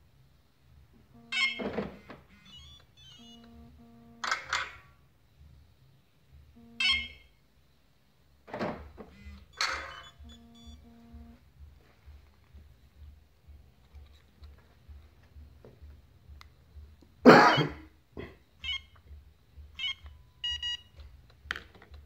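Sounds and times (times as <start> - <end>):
short low beeps: 1.2 - 4.4, 6.6 - 7.3, 9.2 - 11.4.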